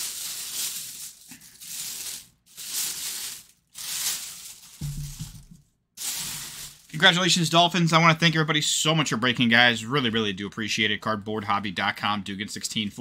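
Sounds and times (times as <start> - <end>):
plastic bag crinkling: 0.0 - 7.2.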